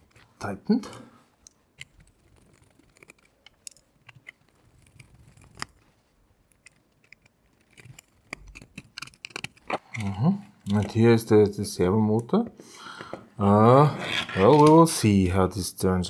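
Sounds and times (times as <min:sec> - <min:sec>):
parts being handled: 0:00.0 - 0:11.2
screwdriver clicking and scraping: 0:01.4 - 0:05.8, 0:06.5 - 0:11.0.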